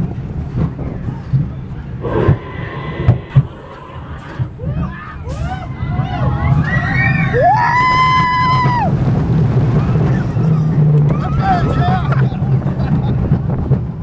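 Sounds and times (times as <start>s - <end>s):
low rumble: 2.0s - 6.0s
riders screaming and yelling: 6.5s - 9.0s.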